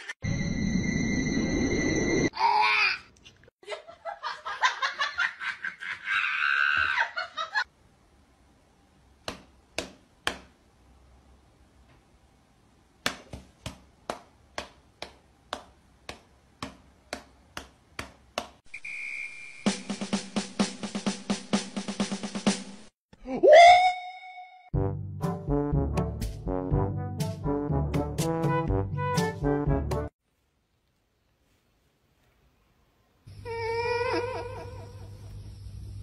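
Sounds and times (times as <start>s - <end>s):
person laughing: 3.6s - 7.6s, 23.2s - 23.8s, 33.8s - 35.3s.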